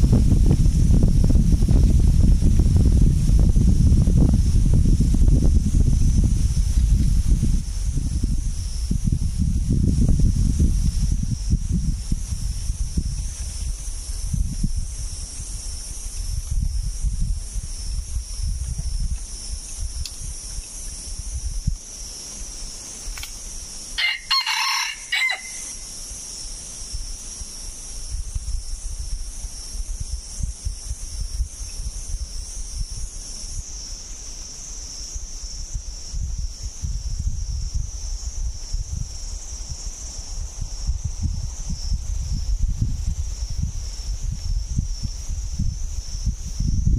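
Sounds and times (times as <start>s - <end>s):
high insect drone: 0.0s - 46.9s
rooster crowing: 24.0s - 25.8s.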